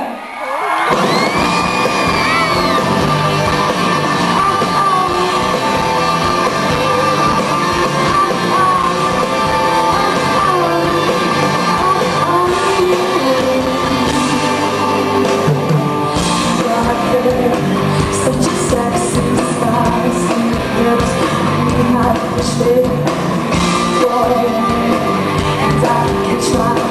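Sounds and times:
guitar: 0.0 - 26.9
live rock band: 0.6 - 26.9
woman singing: 4.1 - 15.6, 16.4 - 23.2, 23.9 - 26.9.

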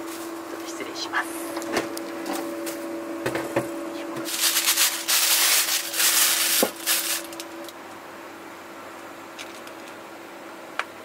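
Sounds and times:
plastic bag rustling and crinkling: 4.2 - 7.8.

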